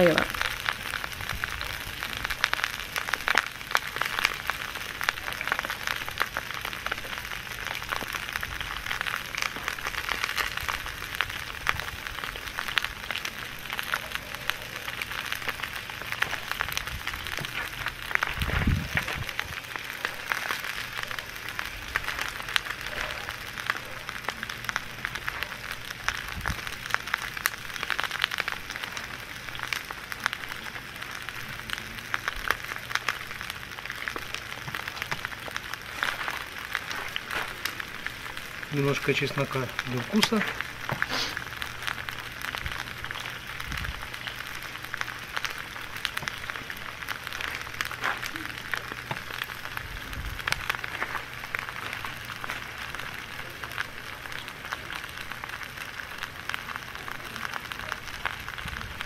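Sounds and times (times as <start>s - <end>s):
onions sizzling on hot stones: 0.0s - 59.0s.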